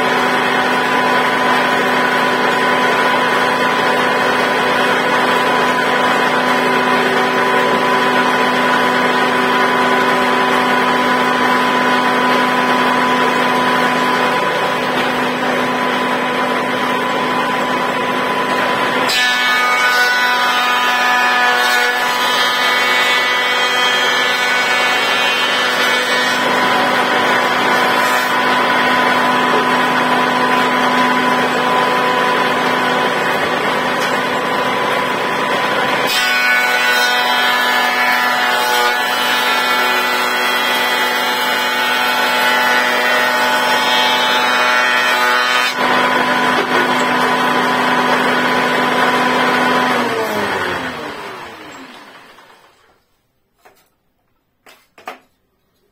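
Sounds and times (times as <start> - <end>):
boards being planed: 0.0 - 54.0
planer motor whining: 24.0 - 53.0.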